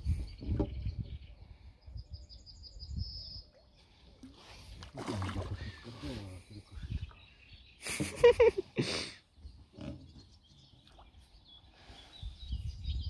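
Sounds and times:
fish splashing in water: 0:04.9 - 0:05.7.

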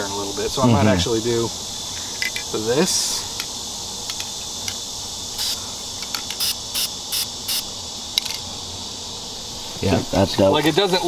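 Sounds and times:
insects chirring: 0:00.0 - 0:11.0
spray paint can hissing: 0:04.1 - 0:07.7.

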